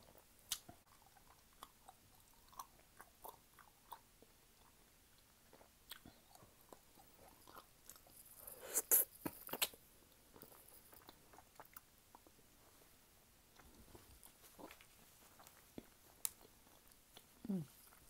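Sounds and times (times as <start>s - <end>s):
chewing honeycomb: 0.1s - 9.8s, 13.5s - 18.0s
wet mouth clicks: 8.5s - 9.8s.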